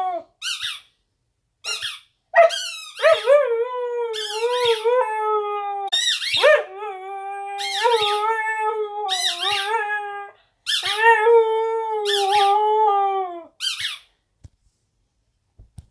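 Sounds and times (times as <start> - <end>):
rubber squeak toy squeaking: 0.4 - 0.9, 1.6 - 3.0, 13.6 - 14.1
dog howling: 3.0 - 13.5.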